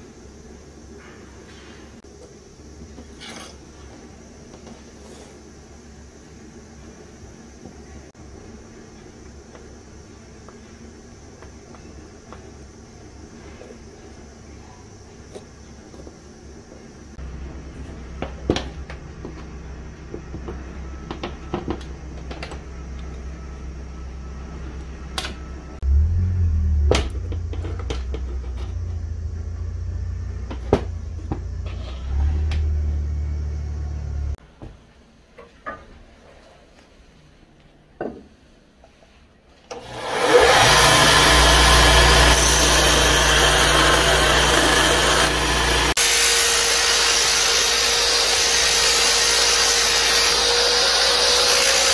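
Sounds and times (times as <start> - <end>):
low steady hum: 16.3 - 34.5
belt sander grinding wood: 39.8 - 51.9.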